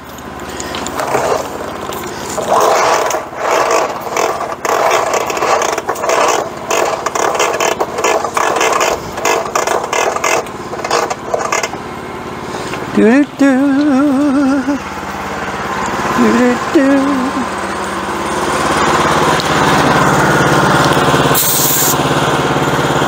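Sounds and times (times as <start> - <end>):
saw scraping and rattling: 0.0 - 14.2, 18.2 - 22.1
gasoline engine running: 0.0 - 23.0.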